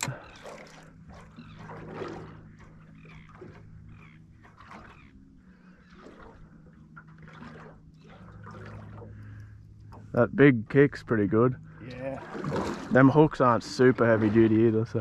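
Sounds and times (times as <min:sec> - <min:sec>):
water lapping against boat hull: 0:00.0 - 0:15.0.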